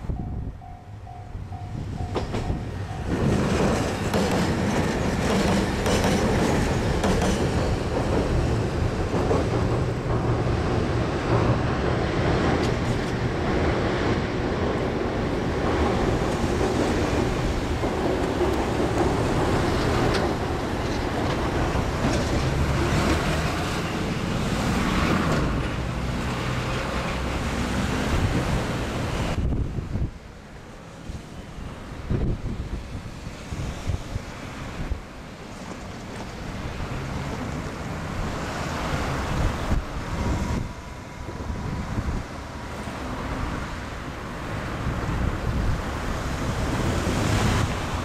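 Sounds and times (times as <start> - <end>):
diesel train rumbling past: 0.0 - 48.0
train wheels clicking over rail joints: 1.6 - 29.3.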